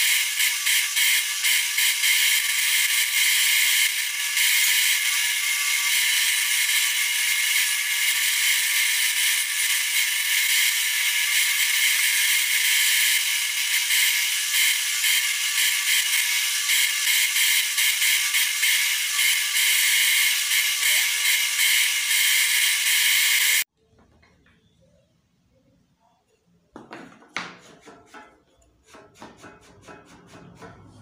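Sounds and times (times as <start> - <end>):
wood grinding on sanding disc: 0.0 - 23.6
disc sander whining: 0.0 - 23.7.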